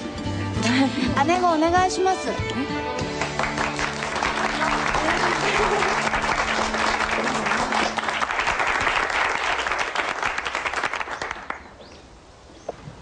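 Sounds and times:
light background music: 0:00.0 - 0:08.0
audience applauding: 0:03.0 - 0:11.7.

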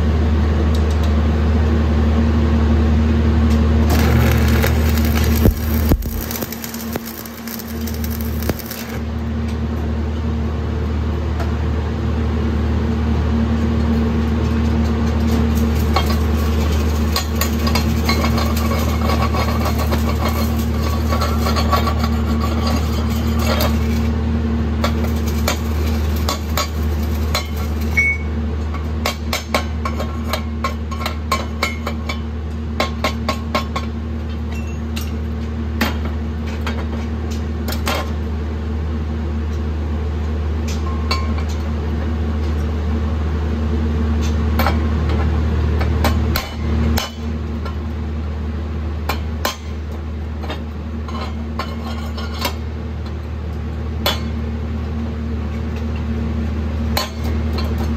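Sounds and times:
steady low hum: 0:03.7 - 0:10.2
welding arc crackling: 0:03.9 - 0:09.2, 0:15.4 - 0:21.6, 0:24.8 - 0:28.0.

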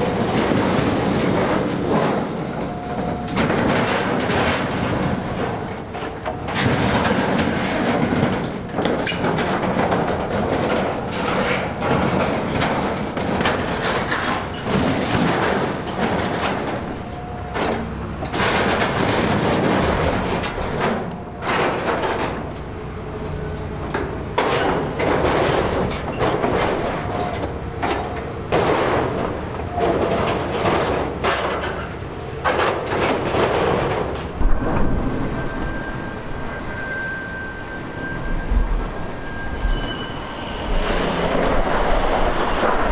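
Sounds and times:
excavator grapple crumpling sheet metal: 0:00.0 - 0:22.8, 0:24.3 - 0:42.9
diesel engine running: 0:00.0 - 0:42.9
sharp bang: 0:34.4 - 0:42.9.

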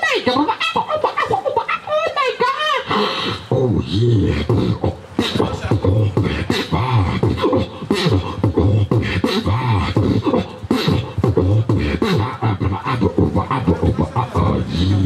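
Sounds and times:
sliding vocal line: 0:00.0 - 0:15.0
person beatboxing: 0:02.9 - 0:15.0.

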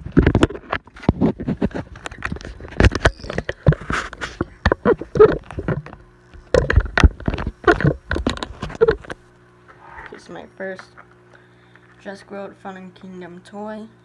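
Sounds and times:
camera handling knocks and rubbing: 0:00.3 - 0:09.2.

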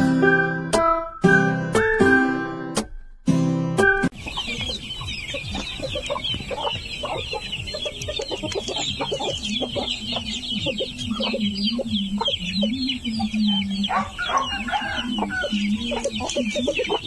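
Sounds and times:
chicks peeping: 0:04.1 - 0:17.0
hens clucking: 0:04.1 - 0:17.0.

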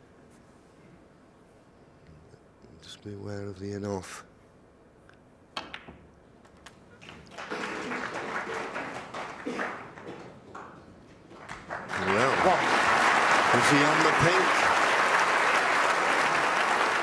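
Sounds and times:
crowd applause: 0:07.0 - 0:10.6, 0:11.3 - 0:17.0.

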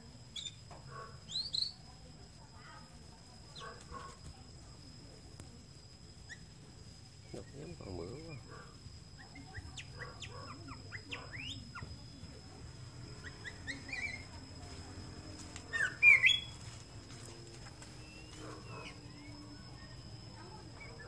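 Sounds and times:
bird singing whistled notes: 0:00.3 - 0:00.6, 0:01.3 - 0:01.9, 0:09.2 - 0:12.2, 0:13.1 - 0:14.5, 0:15.7 - 0:16.6, 0:18.0 - 0:21.0.

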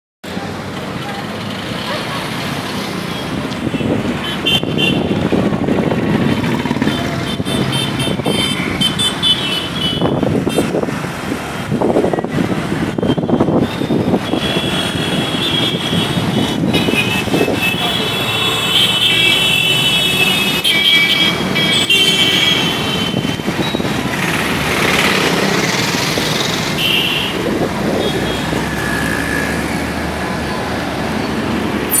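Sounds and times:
traffic engines passing: 0:00.2 - 0:32.0
vehicle horns honking: 0:03.2 - 0:05.2, 0:06.8 - 0:10.8, 0:12.9 - 0:23.9, 0:26.8 - 0:27.4.

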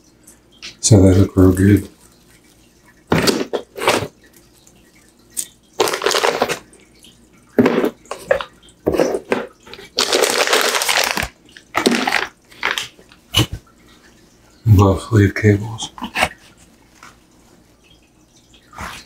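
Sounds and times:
cables and plastic bag rustling: 0:05.8 - 0:06.7, 0:08.1 - 0:13.0.

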